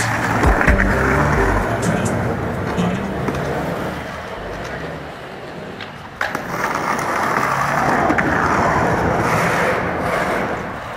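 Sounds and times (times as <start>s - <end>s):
skateboard wheels on rough pavement: 0.0s - 10.9s.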